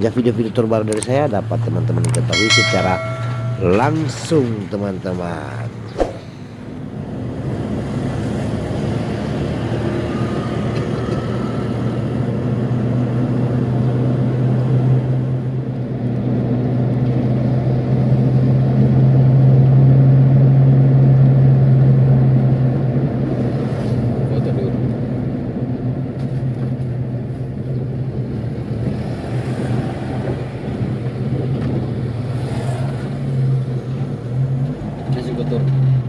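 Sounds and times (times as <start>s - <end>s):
car engine and road noise: 6.6s - 36.0s.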